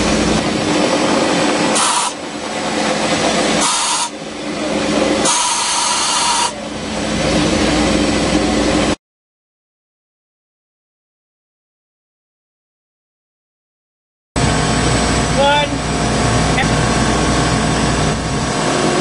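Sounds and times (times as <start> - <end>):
milling machine cutting steel: 3.2 - 6.6.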